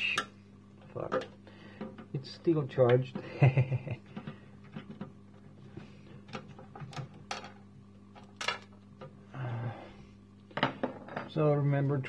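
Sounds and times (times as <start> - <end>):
faint steady low hum: 0.0 - 12.0
sharp clicks and small knocks: 4.1 - 5.4.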